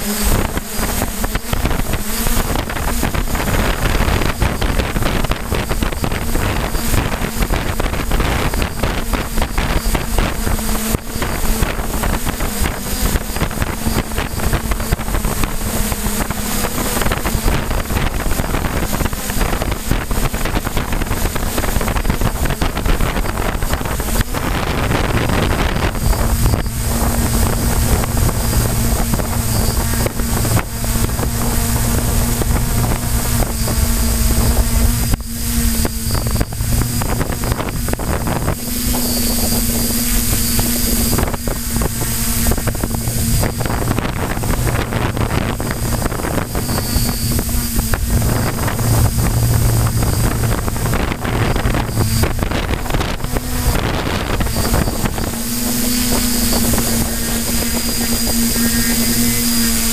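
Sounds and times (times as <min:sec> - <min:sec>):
drone propellers humming: 0:00.0 - 0:59.9
wind buffeting microphone: 0:00.0 - 0:59.9.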